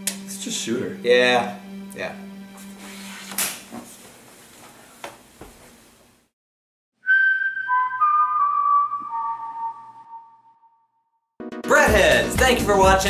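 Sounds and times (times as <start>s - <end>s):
person whistling a tune: 7.0s - 10.8s.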